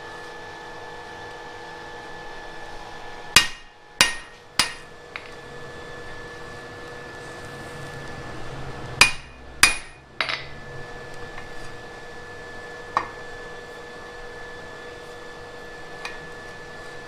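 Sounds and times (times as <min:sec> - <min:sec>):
hammer striking chisel on metal: 0:03.3 - 0:05.3, 0:09.0 - 0:10.5.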